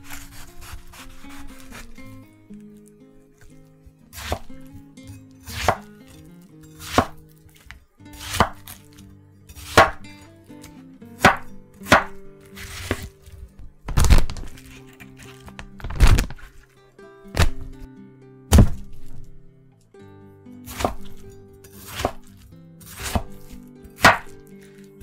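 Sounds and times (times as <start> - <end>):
knife chopping onto wooden board: 4.1 - 4.7, 5.4 - 6.2, 6.8 - 9.0, 9.6 - 10.0, 11.2 - 13.1, 18.5 - 19.2, 20.7 - 21.2, 21.8 - 24.5.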